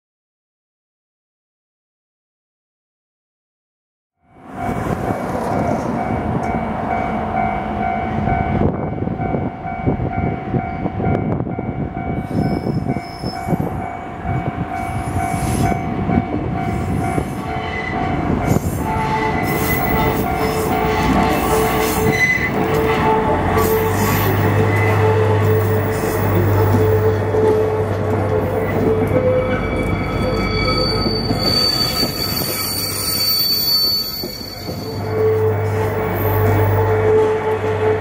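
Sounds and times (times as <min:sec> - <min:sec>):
locomotive engine and rail rumble: 0:04.2 - 0:38.0
high-pitched wheel squeals: 0:12.2 - 0:13.7, 0:16.8 - 0:37.4.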